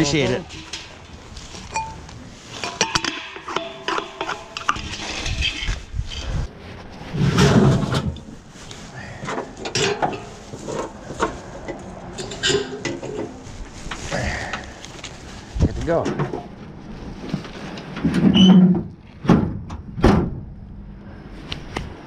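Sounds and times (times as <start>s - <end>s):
metal cylinder clanking and scraping: 0.2s - 6.4s, 7.1s - 8.3s, 9.2s - 13.4s
tank scraping thump: 7.1s - 8.2s.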